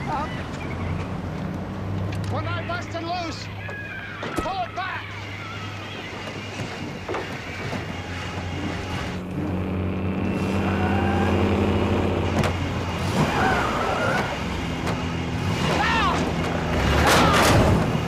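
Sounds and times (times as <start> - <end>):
heavy truck engine drone: 0.0 - 18.0.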